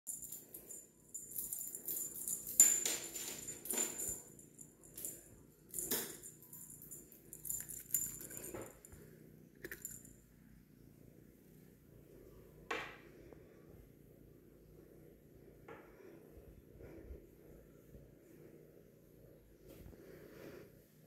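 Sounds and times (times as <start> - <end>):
jingling cat toy rattling: 0.1 - 8.9.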